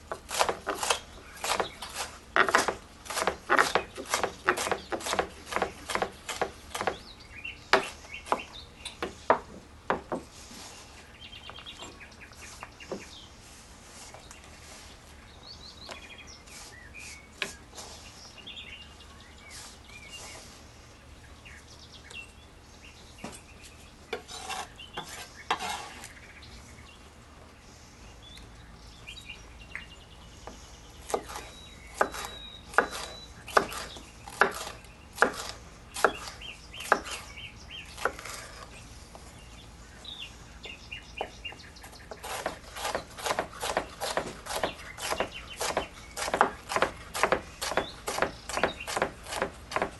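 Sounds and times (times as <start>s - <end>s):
birds chirping: 0.0s - 49.9s
knife chopping on wooden board: 0.2s - 7.0s, 32.0s - 37.2s, 42.2s - 49.9s.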